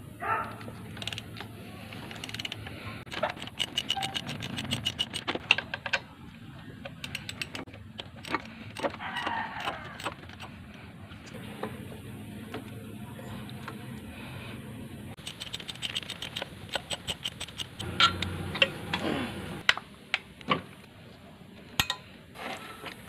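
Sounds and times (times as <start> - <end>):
ratchet wrench clicking: 0.9 - 1.4, 2.0 - 5.6, 7.0 - 10.5, 15.2 - 17.9.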